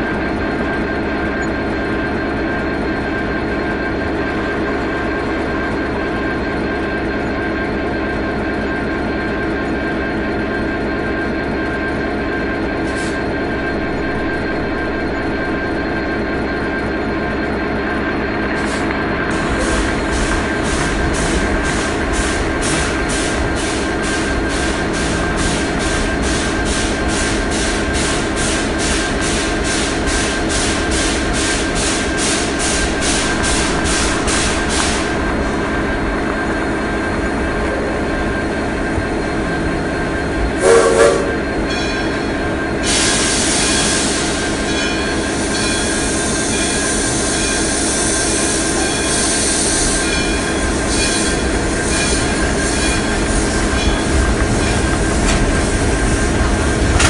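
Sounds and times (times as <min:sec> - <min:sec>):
wheels rumbling on track: 0:00.0 - 0:57.0
rhythmic chuffing beat: 0:19.3 - 0:38.2
train whistle toots: 0:40.6 - 0:41.4.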